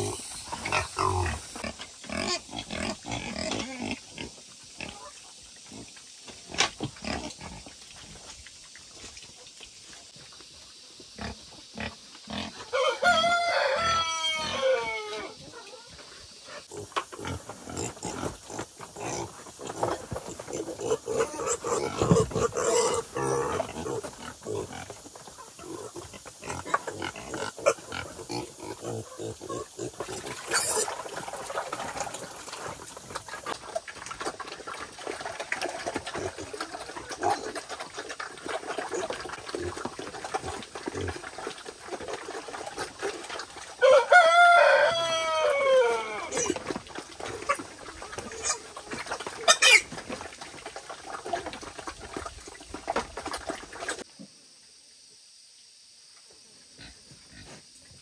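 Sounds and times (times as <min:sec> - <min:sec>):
wild boar squealing: 0:12.7 - 0:15.9, 0:43.9 - 0:46.7, 0:49.4 - 0:50.0.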